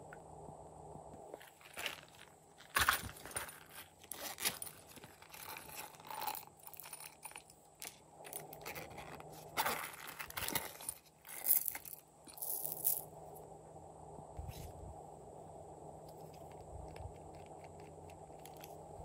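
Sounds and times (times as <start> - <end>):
crinkling: 1.3 - 13.1, 16.1 - 19.0
handling silicone zipper cases: 2.7 - 12.4
plastic beads clicking and rattling: 2.8 - 13.0.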